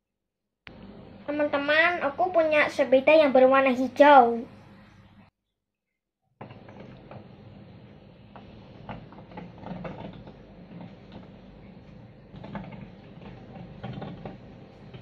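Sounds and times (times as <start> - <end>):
toy wheels rattling on tabletop: 12.3 - 15.0.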